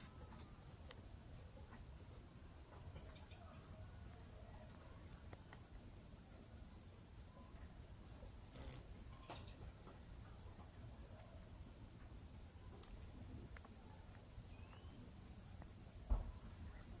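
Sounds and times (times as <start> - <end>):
high-pitched insect trilling: 8.3 - 9.6
thump: 16.1 - 16.4.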